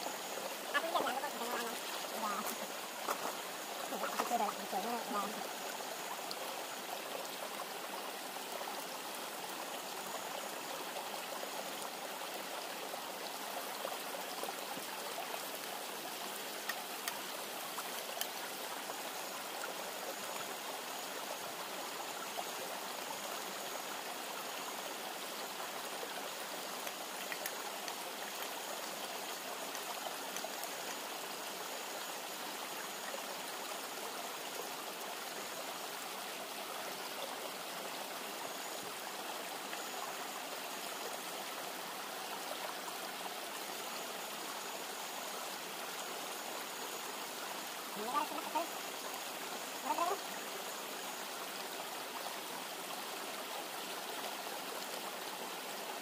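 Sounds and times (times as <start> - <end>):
river rushing: 0.0 - 56.0
faint clicks: 16.6 - 18.4, 26.8 - 28.6.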